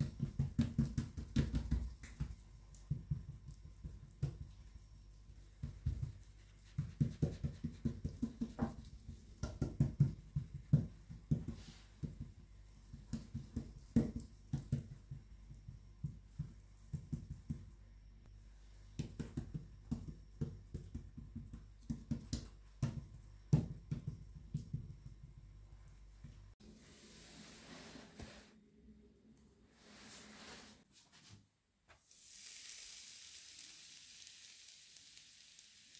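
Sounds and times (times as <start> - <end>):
hands patting dough: 0.0 - 18.0, 18.8 - 26.6.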